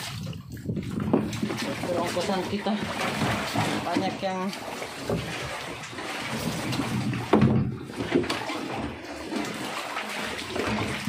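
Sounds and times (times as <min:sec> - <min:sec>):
water sloshing and splashing: 0:00.0 - 0:11.0
knocks: 0:07.2 - 0:08.3.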